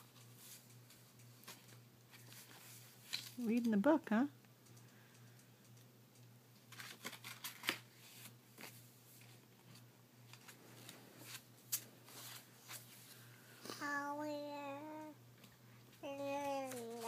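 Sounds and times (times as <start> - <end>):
book pages rustling: 0.2 - 3.4, 6.7 - 13.2, 16.4 - 17.0.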